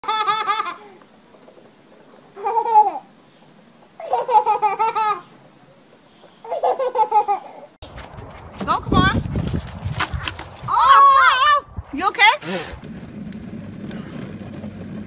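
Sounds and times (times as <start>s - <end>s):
toddler laughing: 0.0s - 1.0s, 2.4s - 3.1s, 4.0s - 5.4s, 6.4s - 7.8s.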